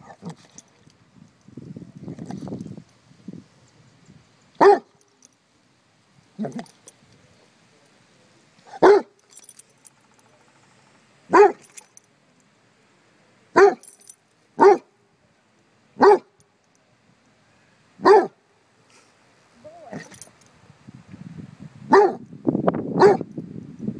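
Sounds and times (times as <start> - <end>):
dog barking: 4.6 - 4.9, 8.7 - 9.2, 11.3 - 11.6, 13.6 - 13.8, 14.6 - 14.9, 16.0 - 16.3, 18.0 - 18.4, 21.9 - 22.2, 23.0 - 23.2.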